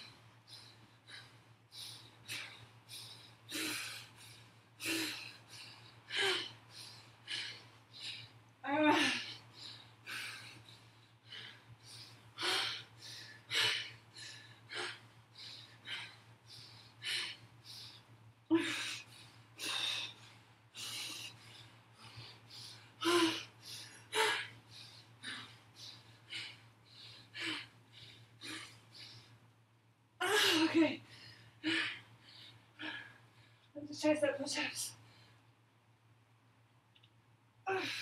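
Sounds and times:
woman breathing hard: 0:00.0 - 0:29.5, 0:30.2 - 0:33.7, 0:37.7 - 0:38.0.

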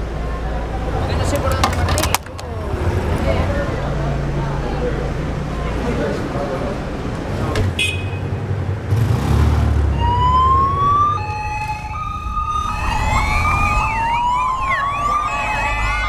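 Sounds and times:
motorcycle engines rumbling: 0:00.0 - 0:16.0
sirens wailing: 0:09.8 - 0:16.0
siren yelp: 0:09.9 - 0:16.0.

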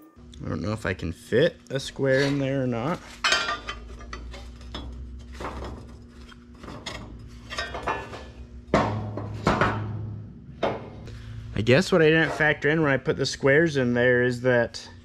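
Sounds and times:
steel clinking and scraping: 0:01.8 - 0:09.8.

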